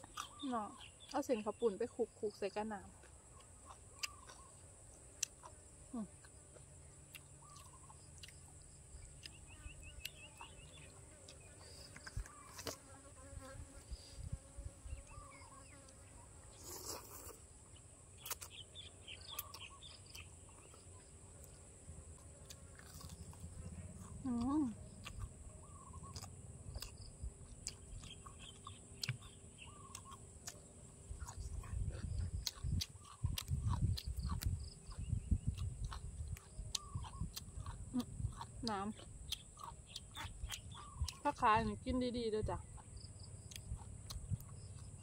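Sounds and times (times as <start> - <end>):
soft chewing crunches: 0.0 - 45.0
fly buzzing: 9.5 - 17.5.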